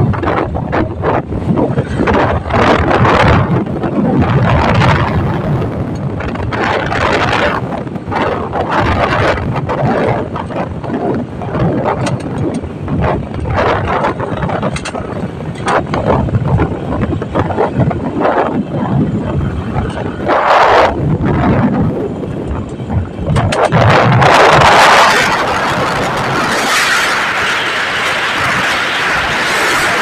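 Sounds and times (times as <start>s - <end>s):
motorcycle engine: 0.0s - 30.0s
road noise: 0.0s - 30.0s
wind buffeting microphone: 0.0s - 30.0s.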